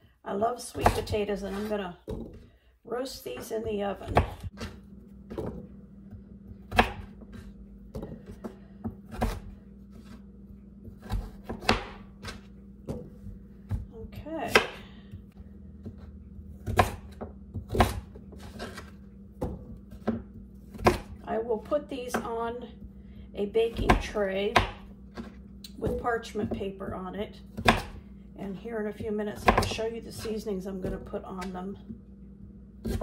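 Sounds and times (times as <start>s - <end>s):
knife chopping on wooden board: 6.6s - 10.2s, 10.8s - 14.8s, 15.8s - 21.2s, 23.7s - 26.6s, 27.5s - 28.0s, 29.0s - 31.6s.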